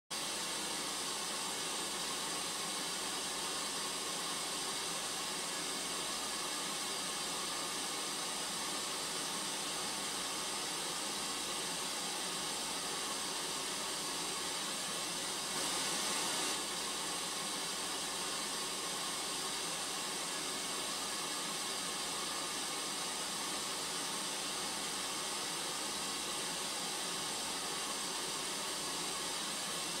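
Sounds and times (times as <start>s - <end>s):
steady static hiss: 0.2s - 30.0s.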